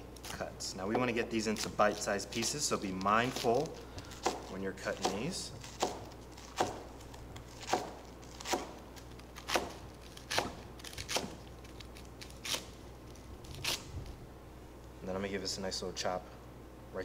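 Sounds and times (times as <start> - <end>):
knife cutting on a board: 3.2 - 8.8, 9.5 - 11.4.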